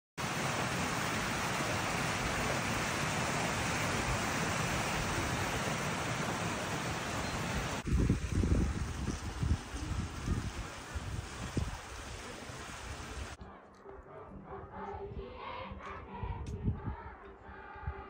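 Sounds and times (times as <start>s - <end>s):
water rushing: 0.2s - 13.4s
wind buffeting microphone: 6.6s - 13.4s, 16.2s - 17.1s.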